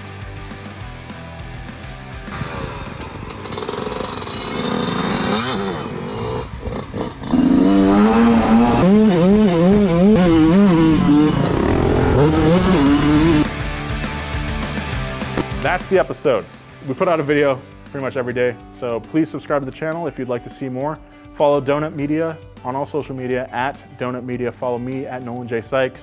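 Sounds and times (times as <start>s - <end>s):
dirt bike engine revving: 2.3s - 15.7s.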